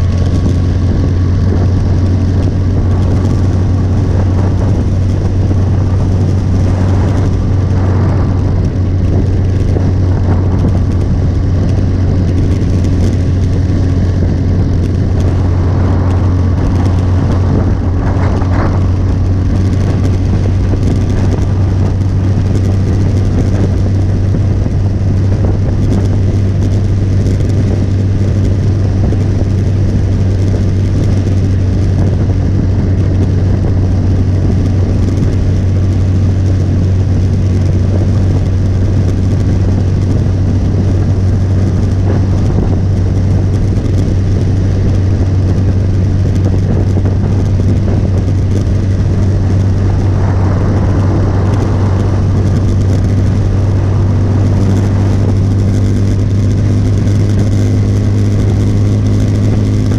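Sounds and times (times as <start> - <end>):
motorcycle engine running: 0.0 - 59.9
wind and road noise: 0.0 - 59.9.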